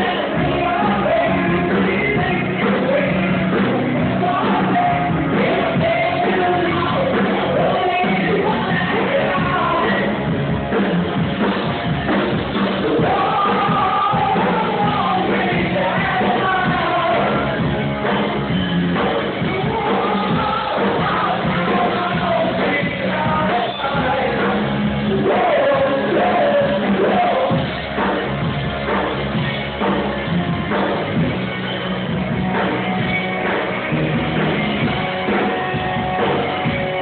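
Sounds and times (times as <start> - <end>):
person singing: 0.0 - 10.4, 12.8 - 17.8, 19.2 - 27.8
rock band playing live: 0.0 - 37.0.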